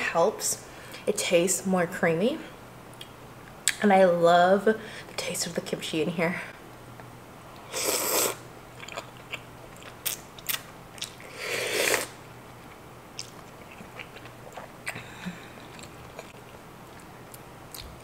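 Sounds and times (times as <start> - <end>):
loud slurping of noodles: 7.7 - 8.4, 11.3 - 12.2
wet chewing clicks: 8.8 - 11.2, 12.7 - 15.0.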